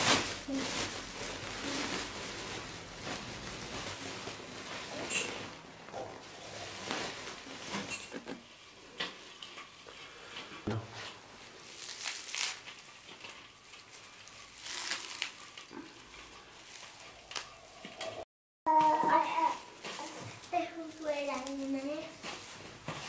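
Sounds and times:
dried leaves rustling and crackling: 0.0 - 5.6, 6.2 - 8.1, 11.4 - 18.1, 18.9 - 23.0.

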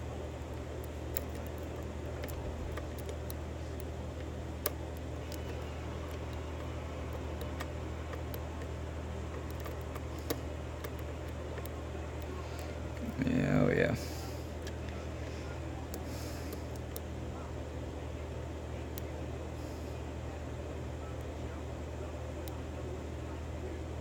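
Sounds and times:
steady low hum: 0.0 - 24.0
lock pick ticking and scraping: 0.5 - 12.7.

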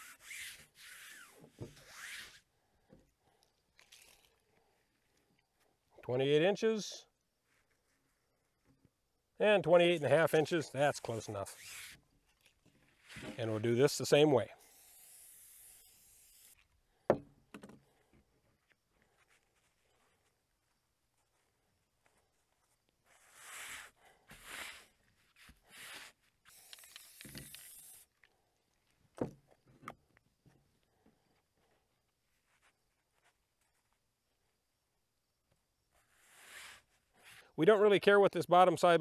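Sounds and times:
hands brushing over canvas: 21.3 - 26.4
aerosol can hissing: 25.7 - 28.1
faint scuffs: 31.7 - 34.0.

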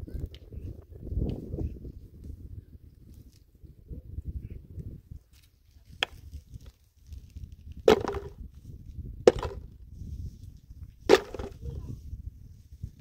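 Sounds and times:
wind rumble on microphone: 0.0 - 13.0
sharp knocks: 7.9 - 8.3, 9.3 - 9.6, 11.1 - 11.5.

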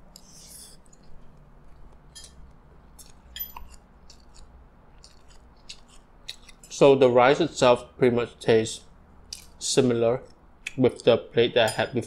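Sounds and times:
mouth chewing food: 0.0 - 6.7.

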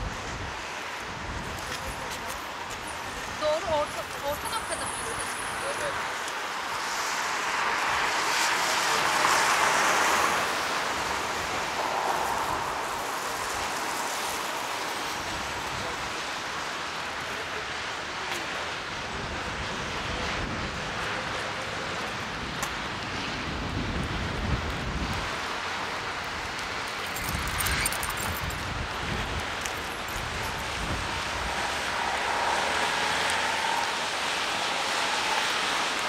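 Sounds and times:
traffic hiss: 0.0 - 36.0
vehicle passing: 30.6 - 36.0.

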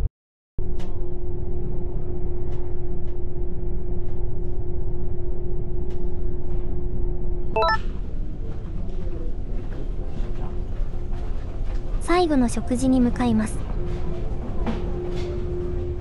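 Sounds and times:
short chime-like tones: 7.6 - 7.8.

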